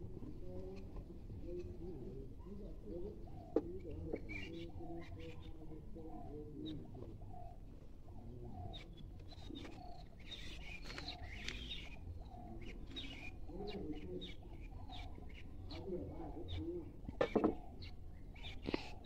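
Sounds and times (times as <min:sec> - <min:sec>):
dove cooing: 0:00.0 - 0:19.0
small birds chirping: 0:00.0 - 0:19.0
sharp knocks: 0:17.2 - 0:17.6.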